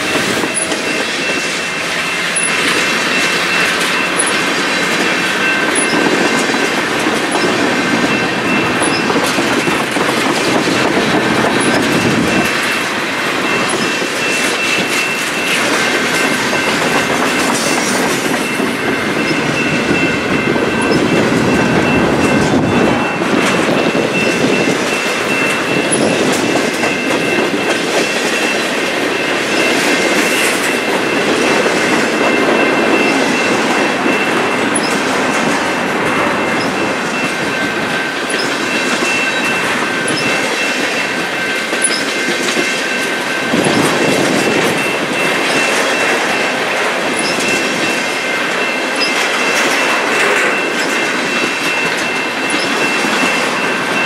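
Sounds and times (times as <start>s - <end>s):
high wheel squeal: 0.0s - 6.7s, 7.3s - 12.8s
clickety-clack over rail joints: 0.0s - 54.0s
train wheels rumbling on rails: 0.0s - 54.0s.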